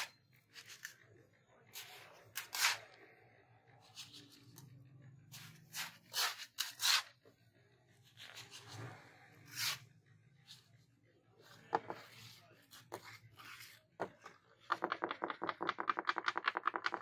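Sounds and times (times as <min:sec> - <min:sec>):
trowel scraping gritty cement: 0:05.3 - 0:07.2.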